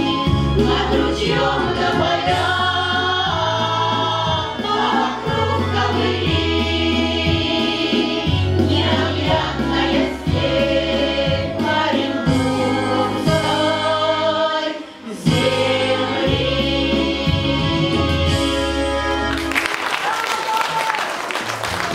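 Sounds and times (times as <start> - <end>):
women's folk choir singing: 0.0 - 19.3
applause: 19.3 - 21.9.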